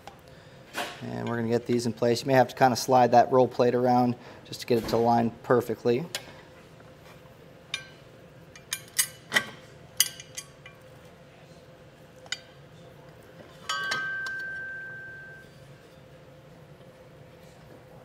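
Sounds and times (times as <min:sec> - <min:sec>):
metal part ringing: 0:13.6 - 0:15.5.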